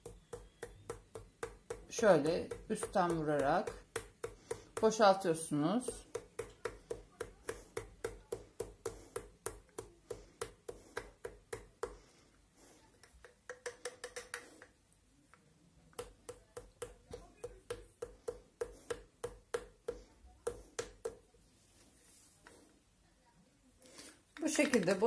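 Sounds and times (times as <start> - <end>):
fingertip tapping glass ampoule: 0.0 - 5.0.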